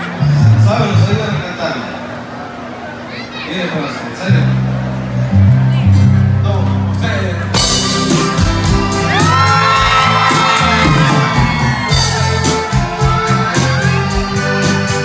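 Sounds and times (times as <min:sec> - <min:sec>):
live band music: 0:03.8 - 0:15.0
crowd whooping and shouting: 0:08.2 - 0:14.2.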